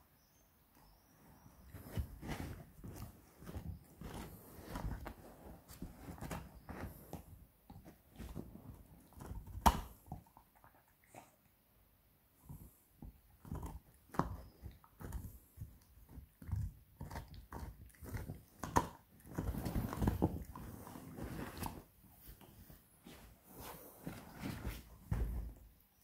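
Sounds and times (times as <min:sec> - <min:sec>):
puppy gnawing a bone: 0:07.7 - 0:11.3, 0:12.5 - 0:21.8.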